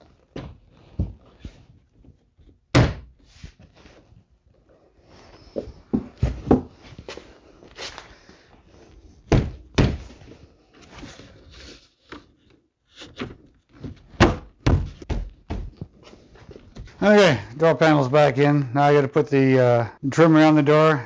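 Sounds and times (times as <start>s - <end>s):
door panel thumps and knocks: 9.3s - 10.1s, 14.2s - 15.8s.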